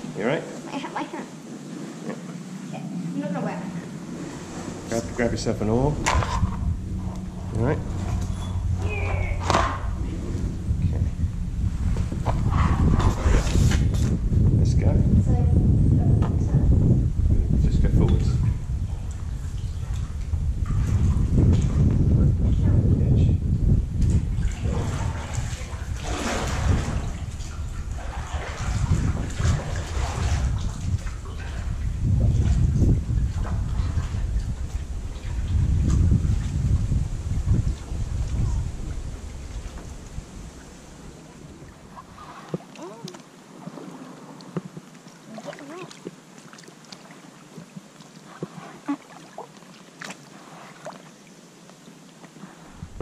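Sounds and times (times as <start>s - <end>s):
kayak paddles splashing water: 0.0s - 14.1s, 24.1s - 53.0s
steady low rumble: 0.0s - 42.4s, 52.7s - 53.0s.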